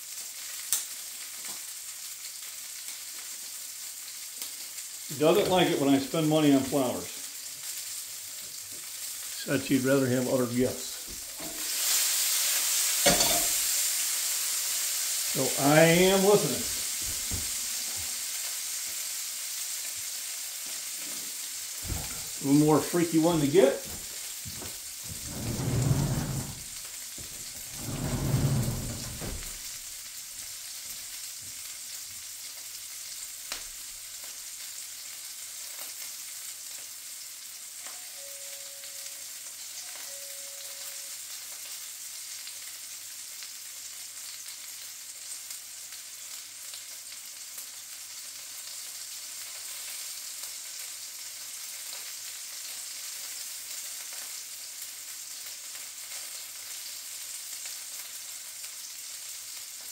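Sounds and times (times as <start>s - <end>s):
sausages sizzling in a pan: 0.0s - 59.9s
muffled bumps: 23.9s - 26.7s.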